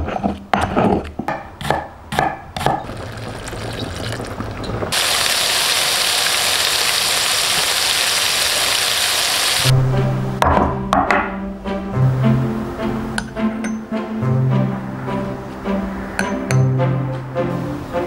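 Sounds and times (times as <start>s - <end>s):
meat sizzling in frying pan: 4.9s - 9.7s.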